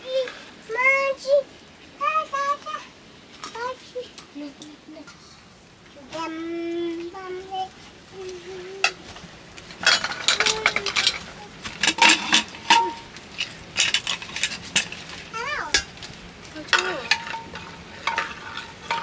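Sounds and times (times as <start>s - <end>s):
dishes and utensils clinking: 9.8s - 15.1s, 16.6s - 19.0s.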